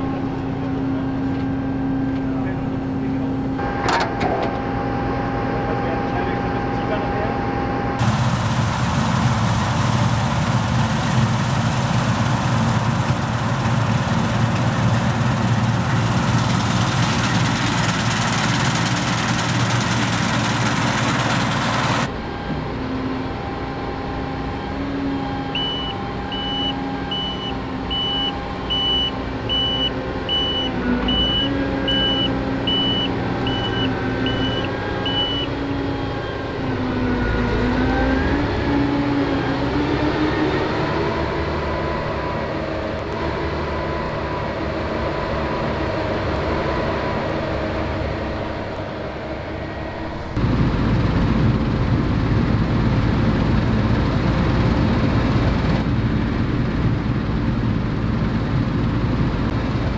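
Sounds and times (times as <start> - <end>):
combine harvester roar: 0.0 - 59.9
engine hum: 0.0 - 59.9
reversing alarm beeping: 25.2 - 36.4.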